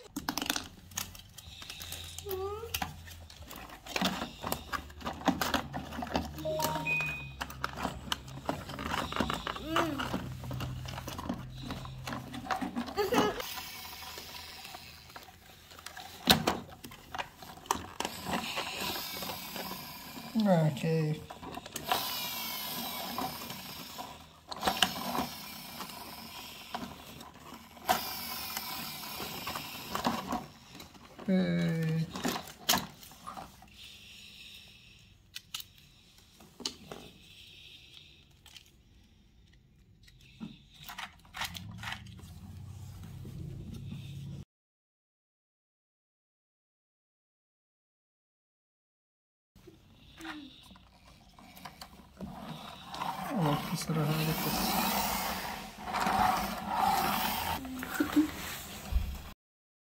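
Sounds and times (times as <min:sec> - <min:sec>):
plastic toy parts clicking: 0:00.0 - 0:13.4, 0:35.3 - 0:35.9, 0:37.9 - 0:42.2
plastic toy cars clicking and scraping: 0:00.0 - 0:44.3, 0:49.6 - 0:59.0.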